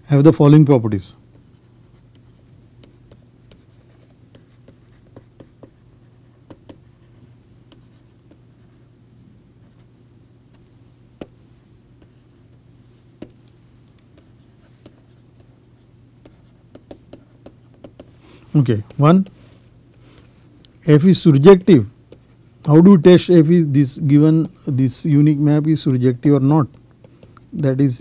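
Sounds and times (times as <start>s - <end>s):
steady low hum: 0.0s - 28.0s
stylus tapping on tablet: 1.3s - 5.8s, 6.4s - 7.0s, 10.5s - 11.4s, 13.2s - 15.5s, 16.2s - 19.4s, 24.2s - 27.6s.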